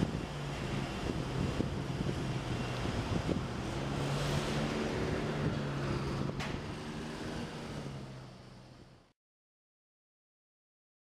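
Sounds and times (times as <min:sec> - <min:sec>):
wind on microphone: 0:00.0 - 0:07.9
street noise: 0:00.0 - 0:09.1
vehicle engine idling hum: 0:00.0 - 0:09.1.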